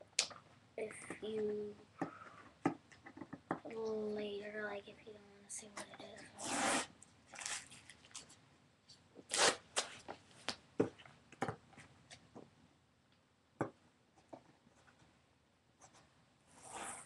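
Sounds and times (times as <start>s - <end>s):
packaging rustling and tearing: 7.3s - 8.3s.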